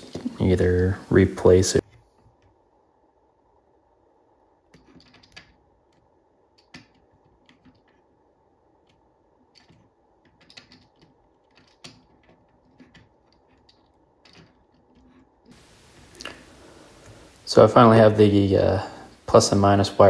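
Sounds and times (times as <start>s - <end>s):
small clicks and scratches on cable: 4.7s - 8.1s, 8.8s - 15.6s.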